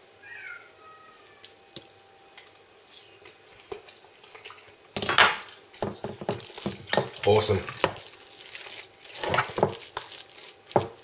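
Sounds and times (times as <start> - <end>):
pet whining: 0.2 - 1.6
spatula scraping rice in dish: 5.9 - 11.0.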